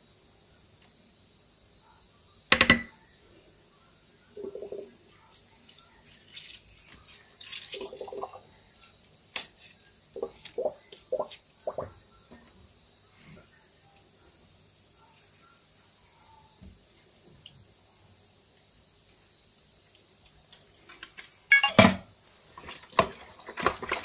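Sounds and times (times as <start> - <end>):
dishware clattering: 2.6 - 2.9.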